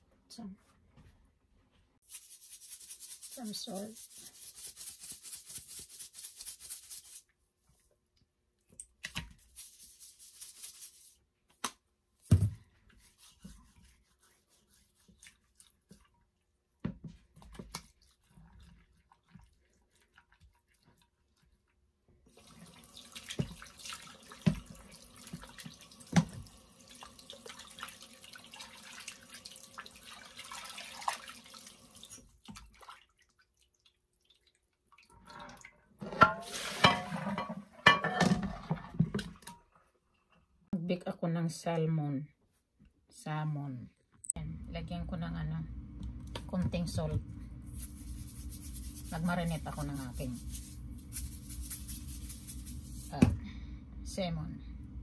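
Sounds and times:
salt shaking rattle: 2.0s - 7.3s, 9.4s - 11.2s, 47.7s - 53.2s
water splashing and dripping: 22.3s - 35.8s.

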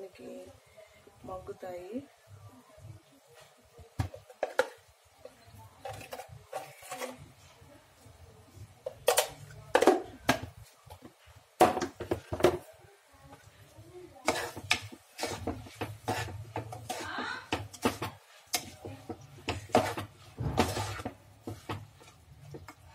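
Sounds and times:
spoon scraping and knocking a pan: 3.9s - 7.4s, 8.8s - 12.7s, 14.2s - 22.9s.

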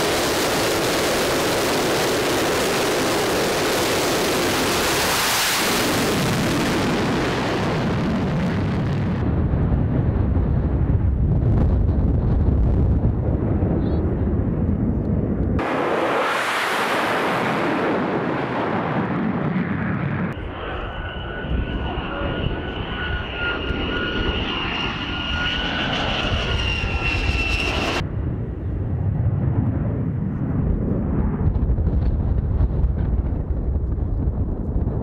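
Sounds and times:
high-pitched jet engine whine: 0.0s - 9.2s, 13.6s - 31.4s
fighter jet passing overhead: 0.0s - 35.0s
low rumble: 0.0s - 35.0s.

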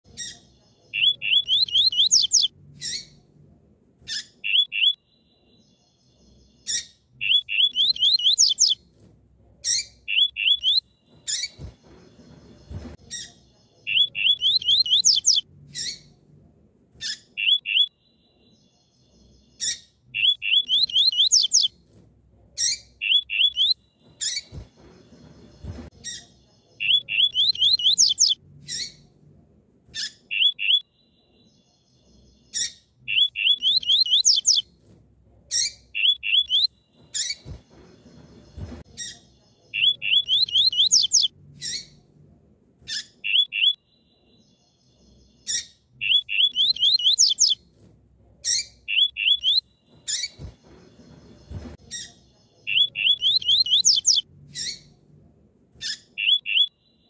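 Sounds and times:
bird chirping in rising sweeps: 1.0s - 3.2s, 4.4s - 8.8s, 13.8s - 16.1s, 17.4s - 21.7s, 26.6s - 29.0s, 30.3s - 34.6s, 39.8s - 41.8s, 44.4s - 47.6s, 48.9s - 54.8s.

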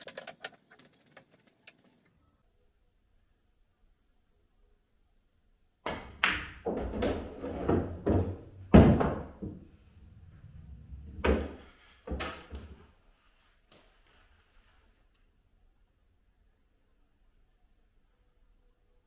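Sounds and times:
pool balls knocking and rumbling: 5.8s - 12.8s
cue striking ball: 5.9s - 9.4s.

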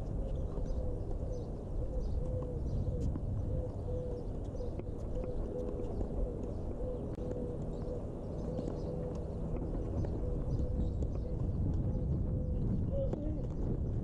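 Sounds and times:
wind rumble on microphone: 0.0s - 14.0s.

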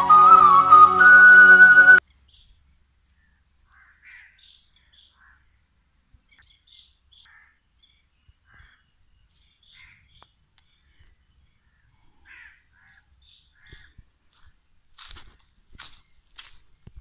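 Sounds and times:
flute music: 0.0s - 2.0s
faint bird chirps: 2.1s - 14.0s.

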